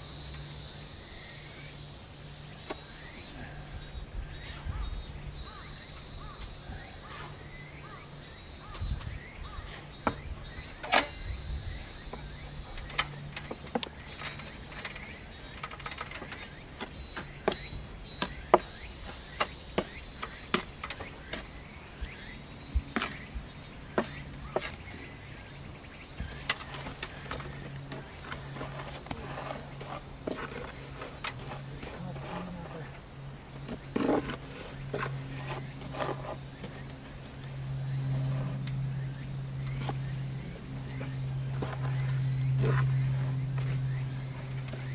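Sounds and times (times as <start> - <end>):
steady low hum: 0.0 - 44.9
trowel scraping and knocking: 26.2 - 32.9, 33.5 - 37.0.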